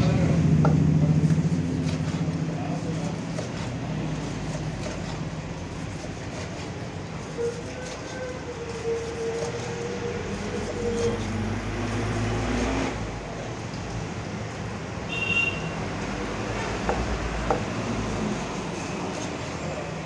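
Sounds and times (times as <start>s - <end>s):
traffic rumble: 0.0s - 20.0s
knife chopping on wooden block: 16.8s - 17.7s.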